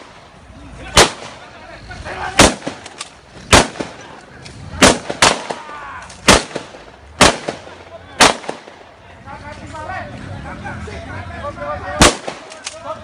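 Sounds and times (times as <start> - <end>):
gunshots: 0.9 - 1.5, 2.4 - 4.1, 4.8 - 8.9, 12.0 - 12.8.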